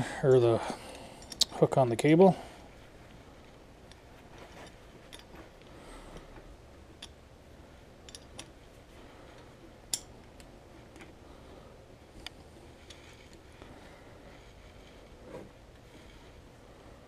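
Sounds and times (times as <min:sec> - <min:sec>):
metal clicks and clinks: 0:04.6 - 0:05.4, 0:08.0 - 0:08.6.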